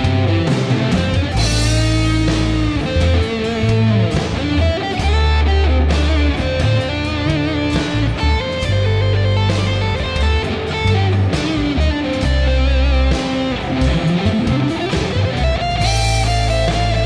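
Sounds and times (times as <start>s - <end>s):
bass notes: 0.0s - 17.0s
drums: 0.0s - 17.0s
lead guitar melody: 0.0s - 17.0s.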